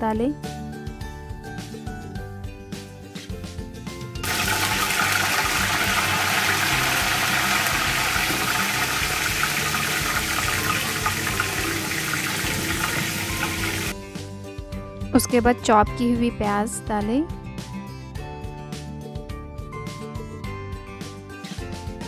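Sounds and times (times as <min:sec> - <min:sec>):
leaves sizzling in hot oil: 0:04.2 - 0:14.0.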